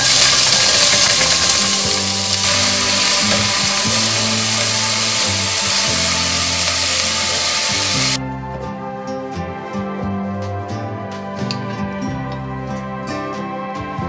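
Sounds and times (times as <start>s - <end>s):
onions sizzling in hot oil: 0.0s - 8.2s
background music: 0.0s - 14.0s.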